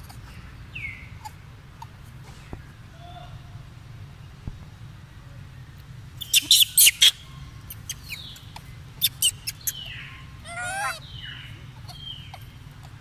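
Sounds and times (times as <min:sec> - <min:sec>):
animal squeaks and chirps: 0:06.2 - 0:12.6.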